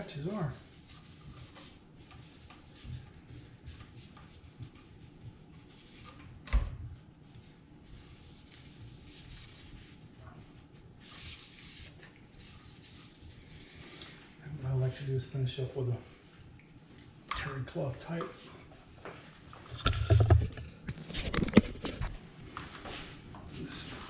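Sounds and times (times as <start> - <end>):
cloth rag rubbing on metal: 0.0 - 6.3, 7.3 - 14.0.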